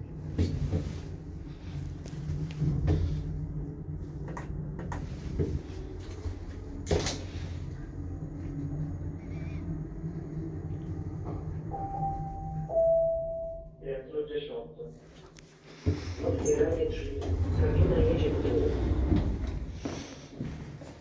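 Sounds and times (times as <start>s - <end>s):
lift ride hum: 0.0s - 21.0s
lift arrival chime: 10.6s - 13.9s.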